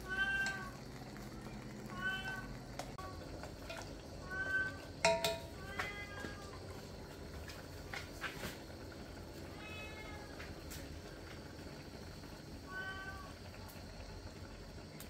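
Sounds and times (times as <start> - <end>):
wood fire crackling: 0.0 - 15.0
cat meowing: 1.9 - 2.4, 9.5 - 10.3.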